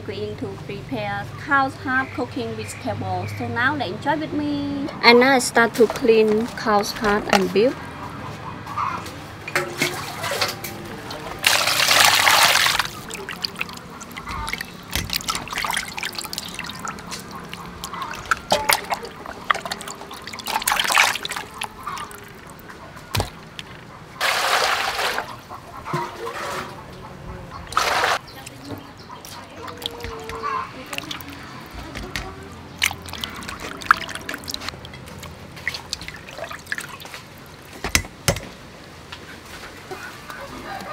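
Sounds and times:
water sloshing in a metal bowl: 9.5 - 26.9, 27.6 - 38.1
loud splashes: 11.4 - 23.4, 24.2 - 25.3, 27.7 - 28.2, 32.8 - 37.0
small wet clicks: 13.0 - 23.8, 28.3 - 37.7.

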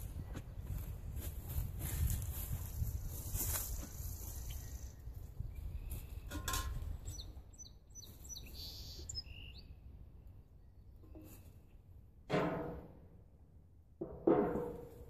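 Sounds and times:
wind rumble on microphone: 0.0 - 7.6
small birds chirping: 2.8 - 9.9
knocks: 12.3 - 13.0, 14.0 - 15.0.

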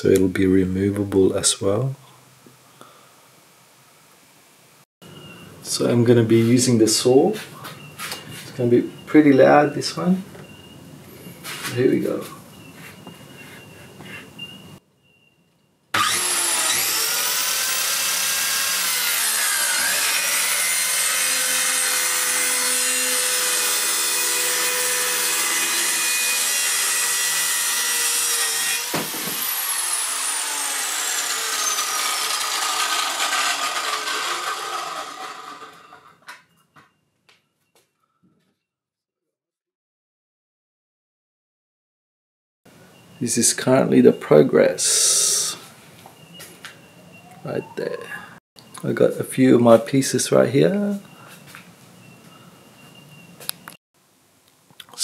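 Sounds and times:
power saw cutting plywood: 16.0 - 36.2.

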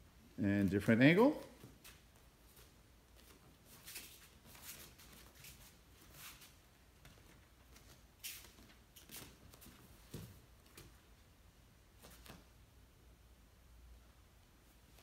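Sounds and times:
bare footsteps on foam mats: 1.4 - 11.1.

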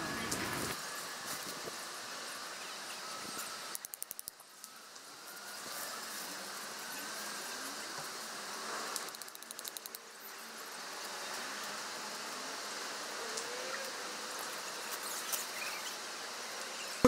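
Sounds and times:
outdoor background hiss: 0.0 - 17.0
rapid clicks: 9.0 - 10.0.

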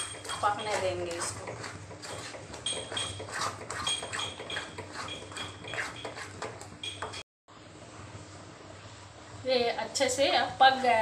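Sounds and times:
wooden spatula scraping metal pan: 0.0 - 7.2.

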